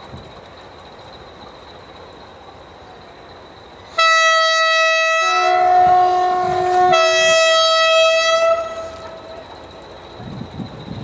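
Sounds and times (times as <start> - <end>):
two-tone locomotive horn: 3.9 - 9.5.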